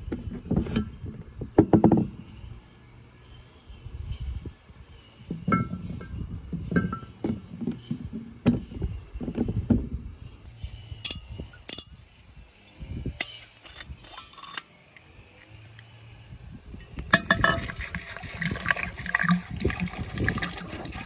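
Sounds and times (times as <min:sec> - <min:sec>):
glass jars and bottles clinking: 0:06.8 - 0:07.3, 0:16.9 - 0:21.0.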